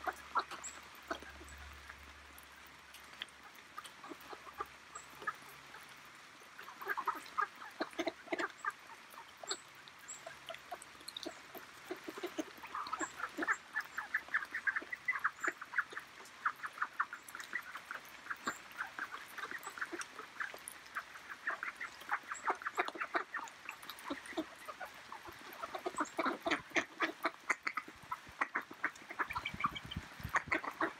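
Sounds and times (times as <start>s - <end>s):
ducks quacking: 0.0s - 1.8s, 3.8s - 5.8s, 6.6s - 30.9s.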